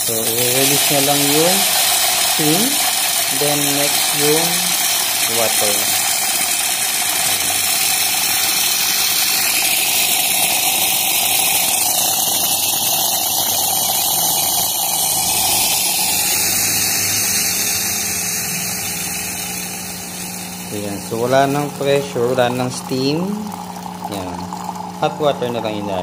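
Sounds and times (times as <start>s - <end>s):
steam wand hissing: 0.0s - 24.2s
low machine hum: 0.0s - 26.0s.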